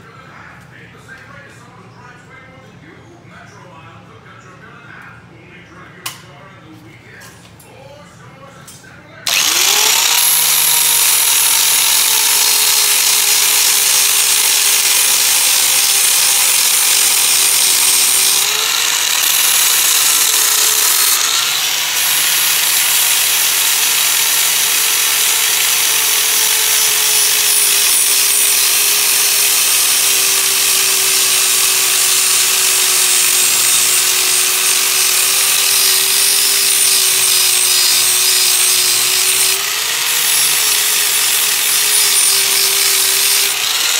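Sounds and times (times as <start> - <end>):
grinder cutting sheet metal: 9.3 - 43.9.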